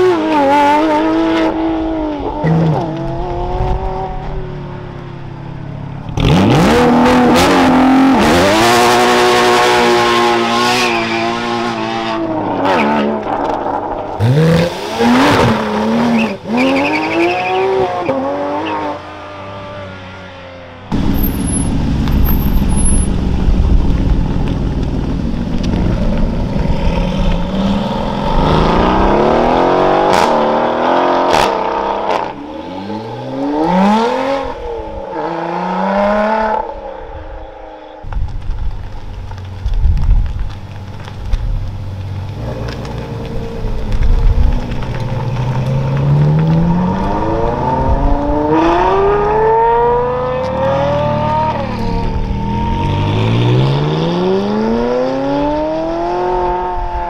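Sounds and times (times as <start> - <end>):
engine revs rising and falling: 6.2 - 13.2, 14.2 - 24.4, 26.6 - 36.8, 45.6 - 57.0
deep engine pulling away: 20.9 - 29.9
sports car engine revving: 20.9 - 36.5.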